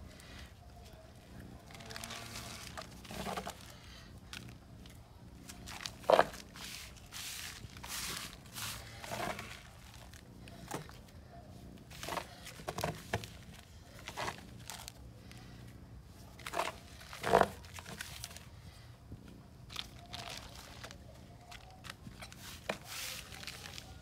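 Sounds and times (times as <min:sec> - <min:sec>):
tub scraping dry meal: 0:01.7 - 0:04.0, 0:05.5 - 0:11.0, 0:11.8 - 0:14.9, 0:16.3 - 0:18.4, 0:21.9 - 0:24.0
plastic sheet crinkling: 0:01.7 - 0:04.5, 0:19.7 - 0:24.0.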